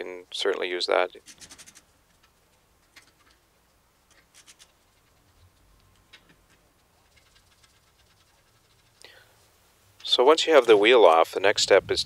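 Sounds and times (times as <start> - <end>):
lug nuts clicking and scratching: 1.2 - 9.0.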